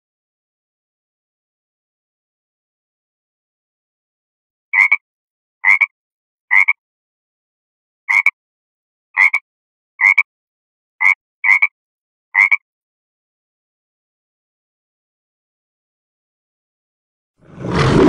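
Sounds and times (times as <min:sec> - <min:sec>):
frog croaking: 0:04.8 - 0:05.0, 0:05.6 - 0:05.9, 0:06.5 - 0:06.8, 0:08.1 - 0:08.4, 0:09.2 - 0:09.4, 0:10.0 - 0:10.3, 0:11.0 - 0:11.8, 0:12.4 - 0:12.6.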